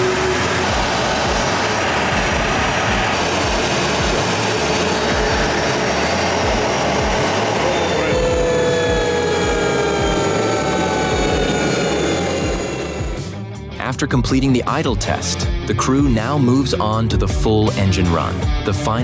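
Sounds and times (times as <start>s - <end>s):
whine falling in pitch: 0.0s - 13.5s
jet engine idling roar: 0.0s - 13.6s.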